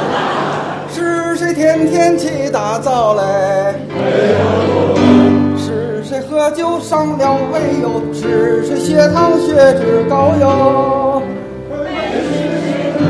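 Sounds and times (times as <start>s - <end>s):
chorus singing: 0.0s - 13.0s
man singing: 0.9s - 3.9s, 4.8s - 11.4s
instrumental accompaniment: 1.4s - 13.0s.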